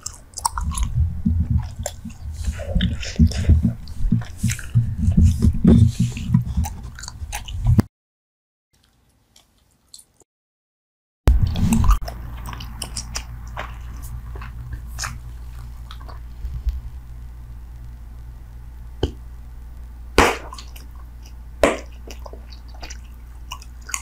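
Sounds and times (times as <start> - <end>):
bubble gum chewing: 0.0 - 7.8, 11.3 - 17.1, 20.2 - 24.0
low hum: 0.0 - 7.8, 11.3 - 24.0.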